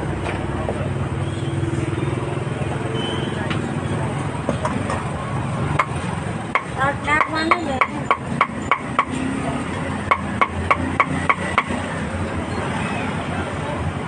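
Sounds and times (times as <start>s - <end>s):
cleaver chopping meat: 10.1s - 11.7s.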